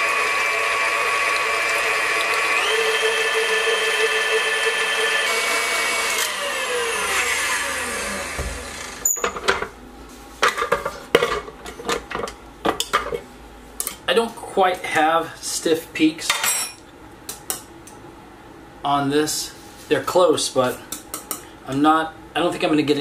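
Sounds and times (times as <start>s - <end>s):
stand mixer motor whine: 0.0s - 9.1s.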